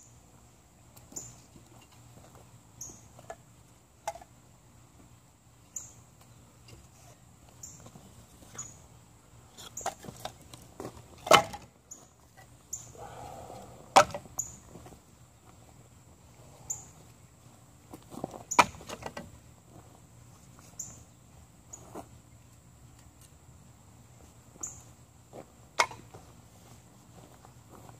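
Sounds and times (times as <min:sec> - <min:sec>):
bird chirping: 0:05.7 - 0:06.0.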